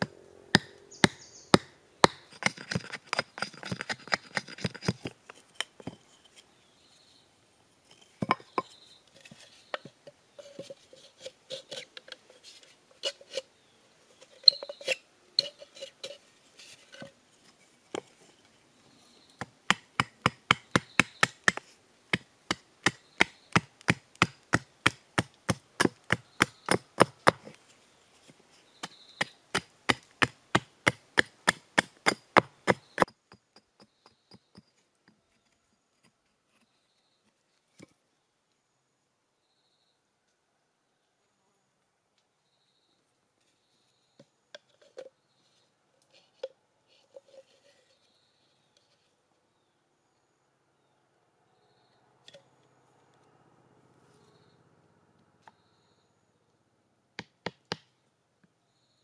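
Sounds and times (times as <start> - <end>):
hatchet chopping wood: 0.6 - 5.1, 19.4 - 27.6, 28.8 - 34.7, 57.2 - 57.9
light knocks and handling: 7.9 - 13.4.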